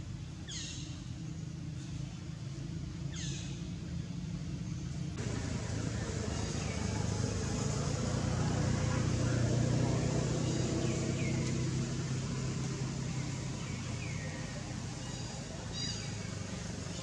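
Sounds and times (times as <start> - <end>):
vehicle engine passing: 3.7 - 17.0.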